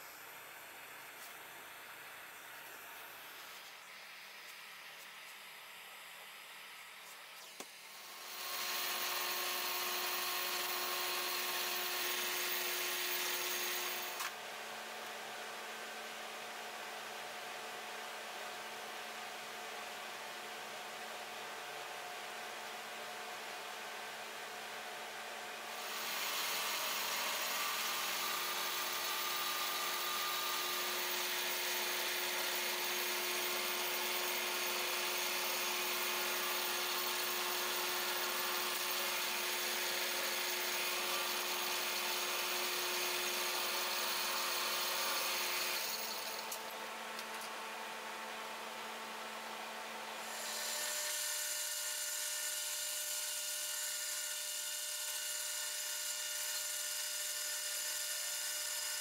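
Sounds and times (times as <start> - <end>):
metal lathe whirring: 6.8 - 14.3, 25.8 - 46.7.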